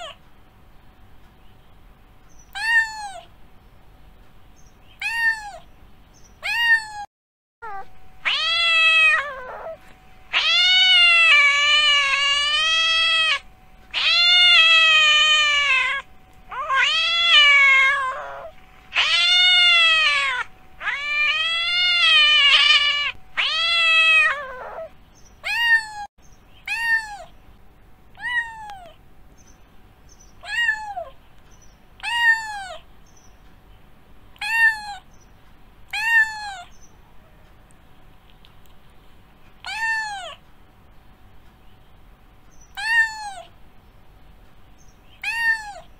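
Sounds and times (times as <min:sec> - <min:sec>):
cat meowing: 0:02.5 - 0:03.3, 0:05.0 - 0:05.7, 0:06.4 - 0:27.3, 0:28.2 - 0:29.0, 0:30.4 - 0:31.2, 0:32.0 - 0:32.8, 0:34.4 - 0:35.1, 0:35.9 - 0:36.7, 0:39.6 - 0:40.4, 0:42.7 - 0:43.6, 0:45.2 - 0:45.9.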